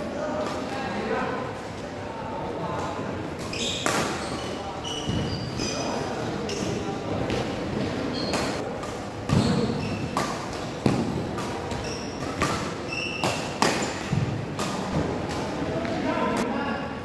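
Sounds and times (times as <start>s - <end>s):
rackets hitting shuttlecock: 3.4s - 4.3s, 8.2s - 16.0s
shoes squeaking on court: 3.4s - 7.4s, 8.0s - 8.6s, 9.3s - 15.0s.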